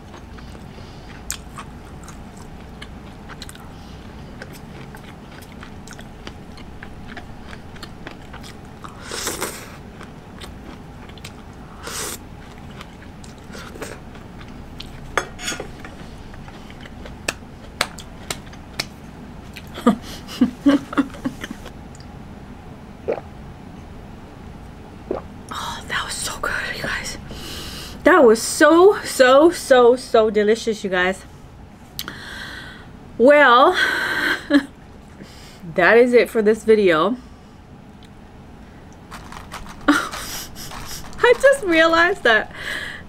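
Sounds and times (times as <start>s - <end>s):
chewing with wet clicks: 0.0s - 11.6s, 12.4s - 19.7s.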